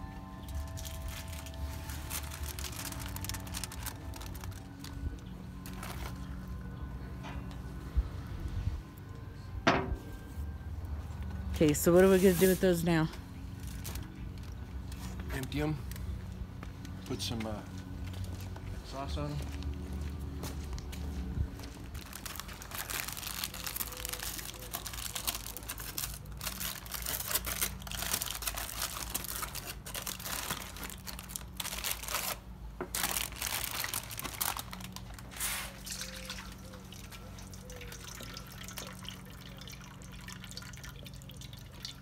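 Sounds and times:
aluminium foil crinkling: 0.0 - 6.6, 11.6 - 18.5, 21.5 - 42.0
juices dripping into metal bowl: 35.8 - 42.0.

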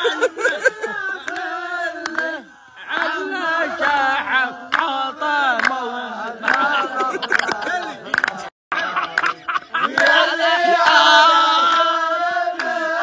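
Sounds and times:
person singing unaccompanied: 0.0 - 8.5.

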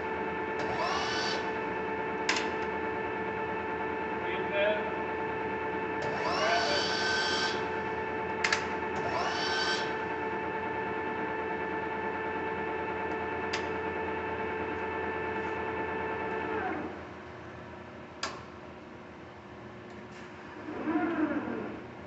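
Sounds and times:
lathe gear whine: 0.0 - 17.2.

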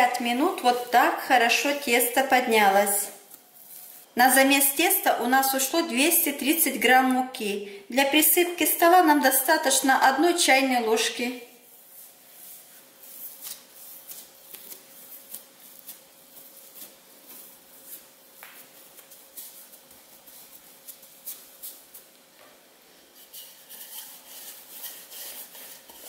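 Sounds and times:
hands kneading dough: 11.6 - 26.0.

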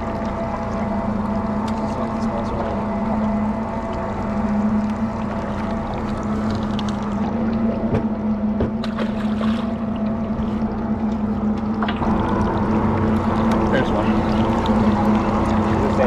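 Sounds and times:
outboard motor idling: 0.0 - 16.0.

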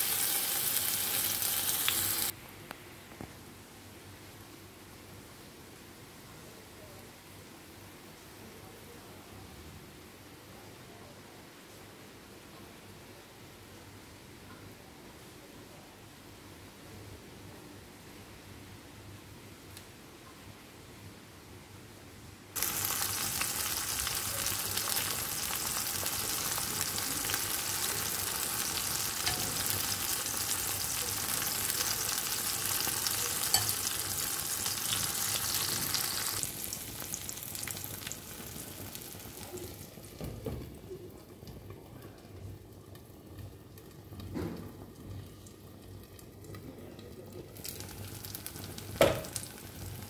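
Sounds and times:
oil sizzling in frying pan: 0.0 - 2.4, 22.6 - 40.6, 47.5 - 50.0.

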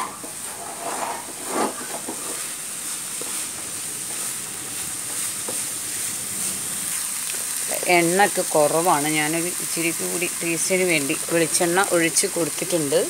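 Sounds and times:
wooden spatula stirring in pan: 0.0 - 9.2
masala sizzling in oil: 0.0 - 13.0.

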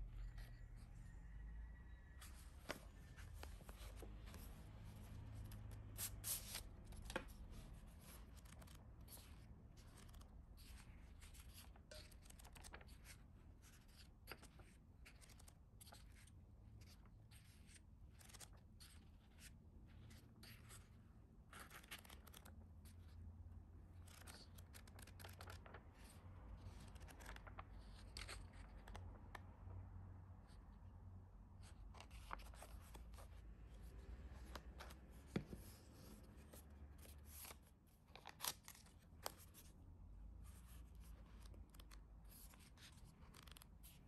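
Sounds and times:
paper rustling: 2.2 - 20.9, 21.6 - 23.2, 24.0 - 29.0, 31.6 - 39.7.

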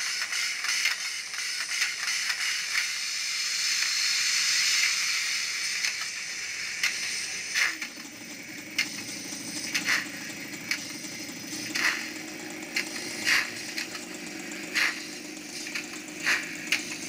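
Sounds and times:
model locomotive steam hiss: 0.0 - 17.0
motor hum: 5.0 - 17.0.

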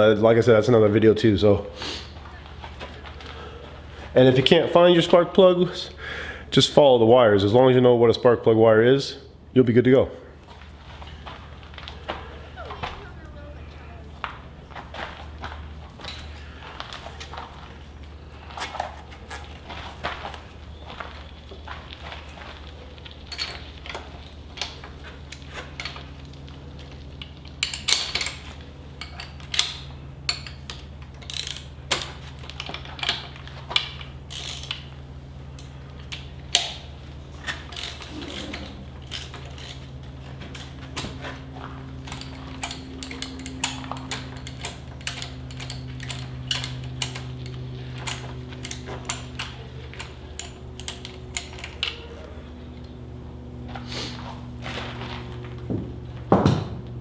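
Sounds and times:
low hum: 0.0 - 57.0
ratchet wrench clicking: 29.0 - 33.2.

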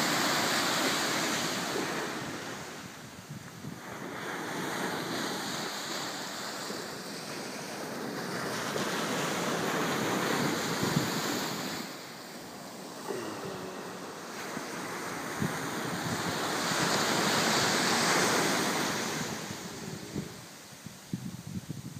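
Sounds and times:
waves breaking on beach: 0.0 - 21.9
wind on microphone: 0.0 - 21.9.

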